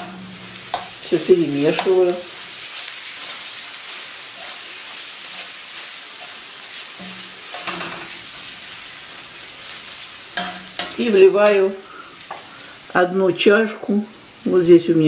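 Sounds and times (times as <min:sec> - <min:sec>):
food sizzling in frying pan: 0:00.0 - 0:15.0
metal spoon scraping pan: 0:04.3 - 0:05.6, 0:06.2 - 0:08.2, 0:10.4 - 0:12.5.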